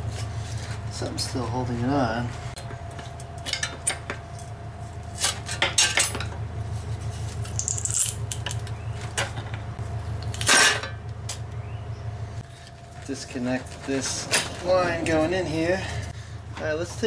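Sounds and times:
steady low hum: 0.0s - 17.0s
metal clinks and knocks: 2.8s - 4.6s.

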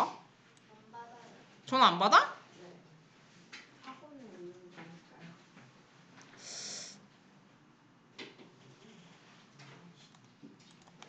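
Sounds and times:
faint room noise: 0.0s - 11.0s
breathy exhale into microphone: 6.4s - 7.0s.

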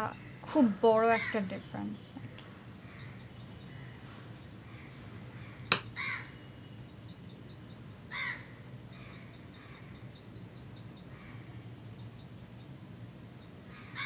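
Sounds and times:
crows cawing: 4.7s - 6.3s, 8.1s - 9.1s
low hum: 6.3s - 14.0s.

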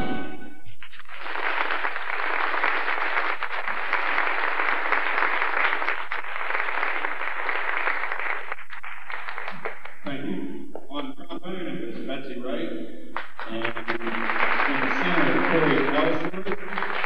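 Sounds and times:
audience applause: 0.8s - 10.0s, 13.2s - 17.0s.

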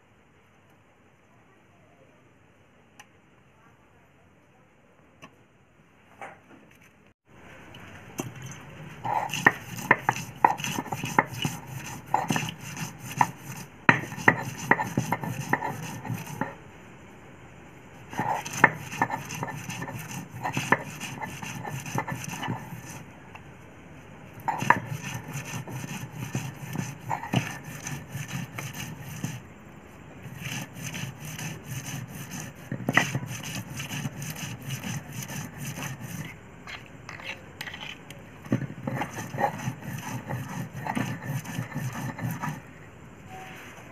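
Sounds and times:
stone roller grinding on stone: 9.0s - 16.6s, 18.1s - 23.0s, 24.4s - 29.4s, 30.2s - 42.7s.

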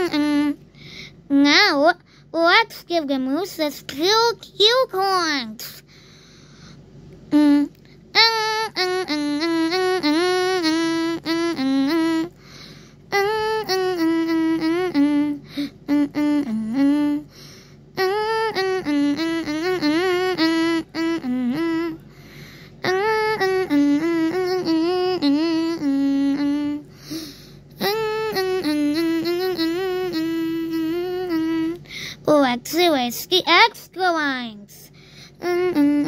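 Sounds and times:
person humming a tune: 0.0s - 1.5s, 7.3s - 32.9s, 34.6s - 36.0s.

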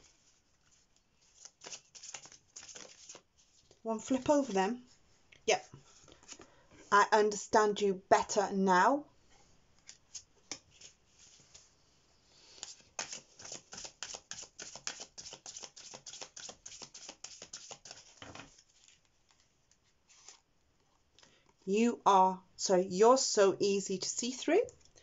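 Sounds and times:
cards being shuffled: 0.0s - 4.6s, 9.8s - 11.6s, 12.6s - 20.4s.

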